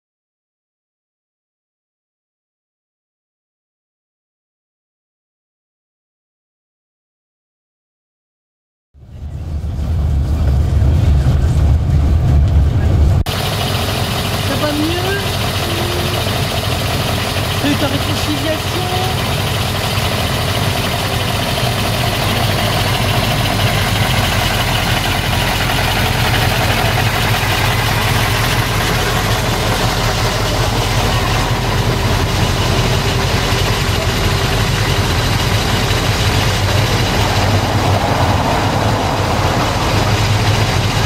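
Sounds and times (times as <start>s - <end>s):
diesel engine idling: 9.0s - 41.0s
street traffic: 9.0s - 41.0s.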